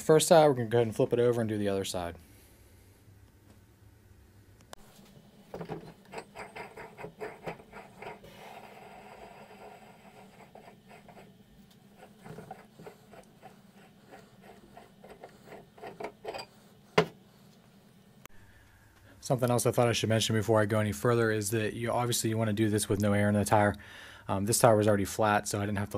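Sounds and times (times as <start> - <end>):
faint scratching: 4.8 - 17.7.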